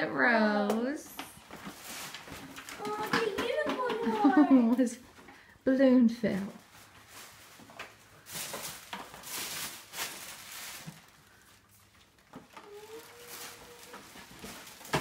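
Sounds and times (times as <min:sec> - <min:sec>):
tissue paper rustling: 0:01.4 - 0:04.8, 0:06.2 - 0:15.0.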